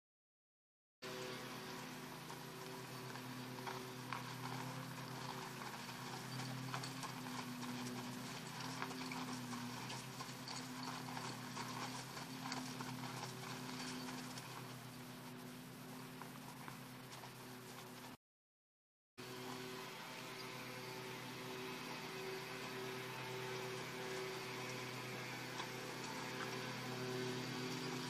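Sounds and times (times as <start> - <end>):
horse hoofbeats on sand: 1.1 - 18.2, 20.4 - 28.0
steady low hum: 1.1 - 18.2.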